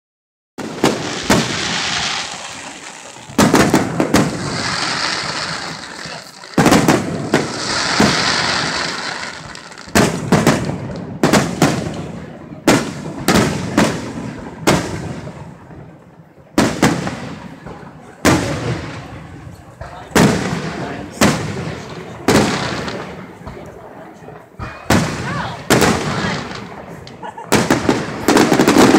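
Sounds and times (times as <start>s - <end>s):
firework shells bursting: 0.6s - 12.0s.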